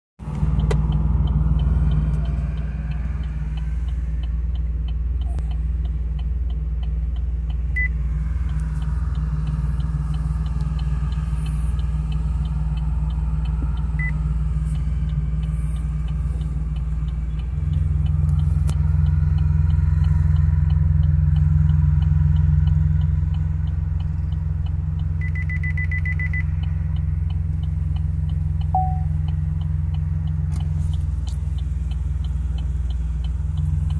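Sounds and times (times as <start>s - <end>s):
car engine and tyres rumbling: 0.2s - 33.9s
parking sensor beeps: 7.7s - 8.0s, 14.0s - 14.2s, 25.2s - 26.6s, 28.6s - 29.3s.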